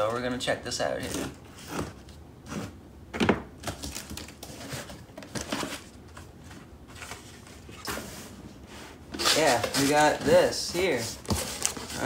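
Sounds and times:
cardboard scraping and rustling: 3.7s - 12.0s.

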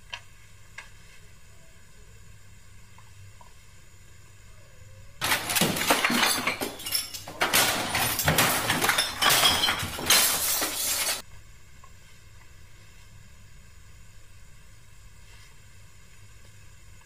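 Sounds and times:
glass smashing and crashing: 5.2s - 11.2s.

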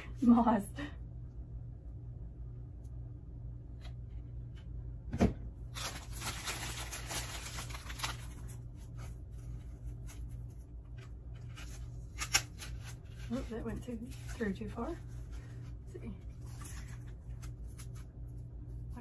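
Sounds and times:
plastic bag crinkling: 5.6s - 10.3s.

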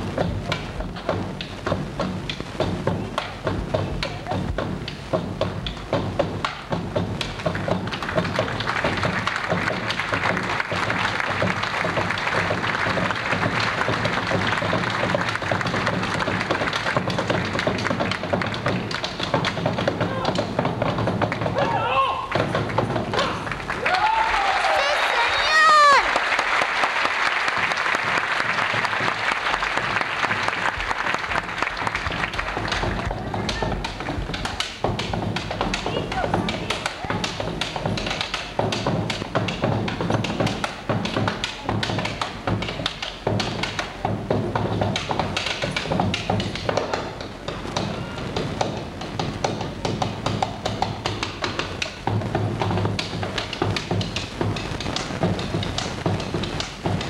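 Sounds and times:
drums beaten with sticks: 0.0s - 24.3s, 27.5s - 57.0s
audience applause: 7.4s - 19.7s, 22.3s - 35.1s.

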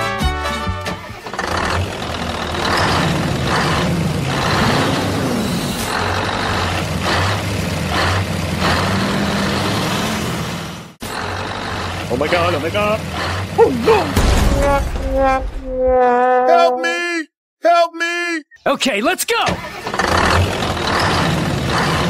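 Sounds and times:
truck engine running: 0.0s - 14.8s, 19.6s - 22.0s.

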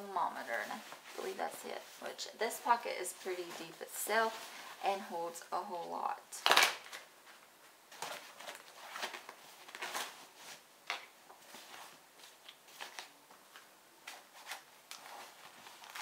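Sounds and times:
plastic bags and papers crinkling: 6.4s - 16.0s.

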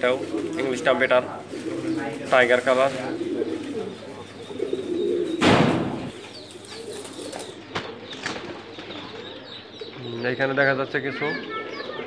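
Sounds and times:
pigeons cooing: 0.0s - 12.0s.

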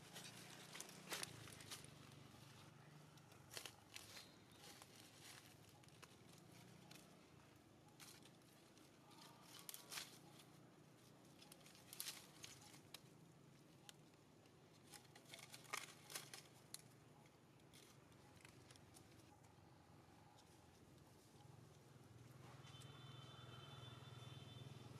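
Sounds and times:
dry leaves crackling: 0.0s - 19.5s.

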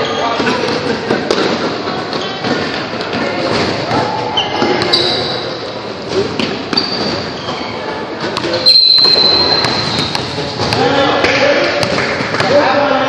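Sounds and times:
echoing gym noise: 0.0s - 13.0s
referee's whistle: 8.6s - 10.1s.

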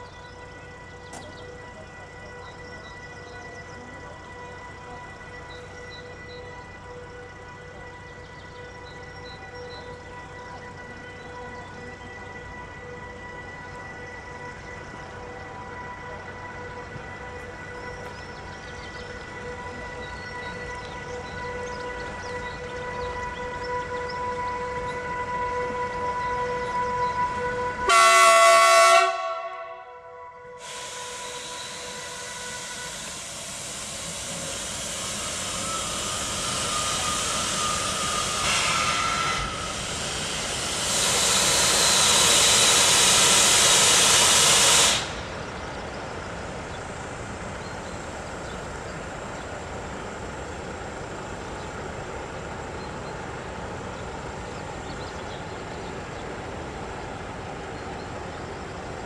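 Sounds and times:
locomotive horn blast: 0.0s - 45.4s
train rushing noise: 0.0s - 59.0s
loud hiss: 30.6s - 46.6s.

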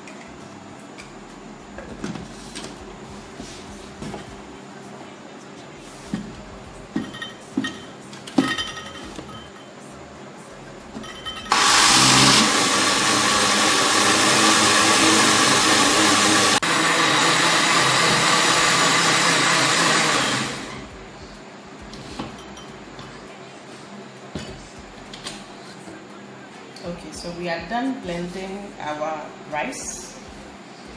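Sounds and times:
blender motor running: 11.5s - 20.8s.

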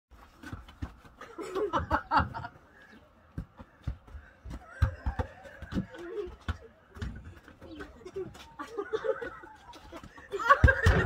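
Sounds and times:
burst of laughter: 8.6s - 11.0s.

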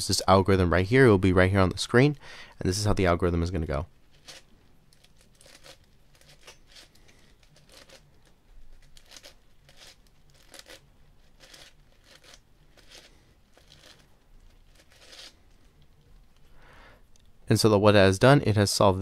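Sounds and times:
plastic clacks of puzzle cube turning: 4.2s - 16.0s.

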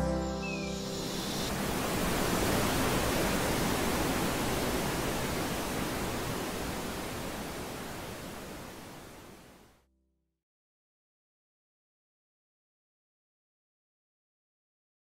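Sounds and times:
waterfall rushing: 0.0s - 9.7s.

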